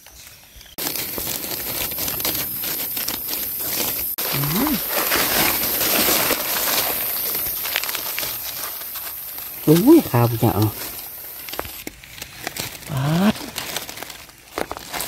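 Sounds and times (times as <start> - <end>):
dry leaves crunching underfoot: 0.0 - 15.0
brief voiced sound: 4.3 - 4.8, 12.9 - 13.5.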